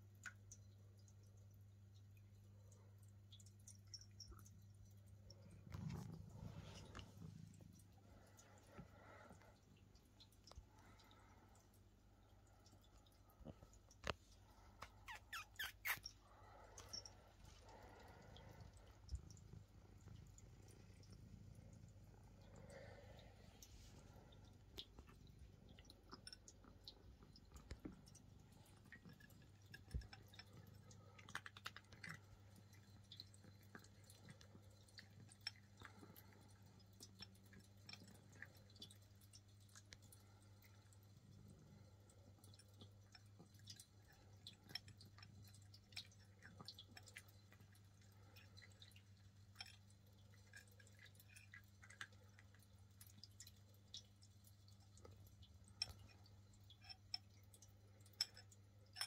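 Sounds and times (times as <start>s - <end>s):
low steady hum: 0.0s - 59.0s
cat crunching dry kibble: 5.4s - 8.3s.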